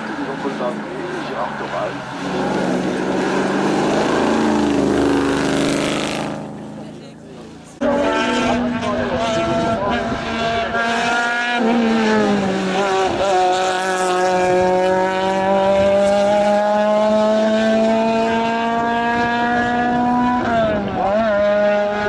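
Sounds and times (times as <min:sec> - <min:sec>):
race car engine revving: 0:00.0 - 0:22.0.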